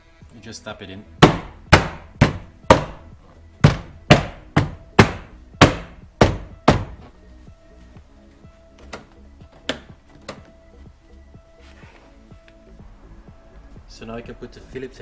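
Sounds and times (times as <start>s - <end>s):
faint background music: 0.0s - 15.0s
hand striking plastic panel: 1.2s - 3.0s, 3.6s - 7.1s, 8.8s - 10.5s.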